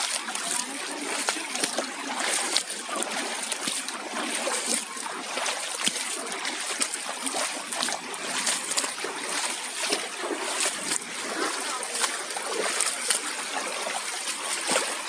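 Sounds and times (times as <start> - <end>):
feet splashing through water: 0.0 - 15.0
stream rushing over rocks: 6.4 - 15.0.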